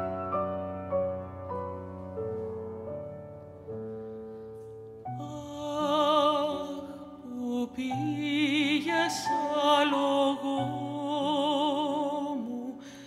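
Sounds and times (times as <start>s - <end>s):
piano chords: 0.0s - 13.0s
woman singing with vibrato: 5.2s - 13.0s.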